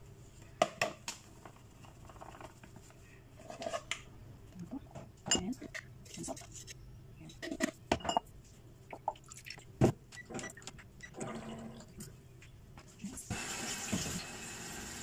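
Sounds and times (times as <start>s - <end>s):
water running: 13.3s - 15.0s.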